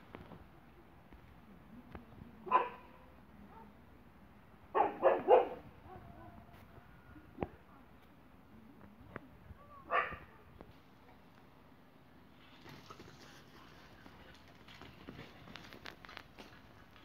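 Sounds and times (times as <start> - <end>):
dog barking: 2.5 - 3.8, 4.7 - 6.4, 9.9 - 10.3.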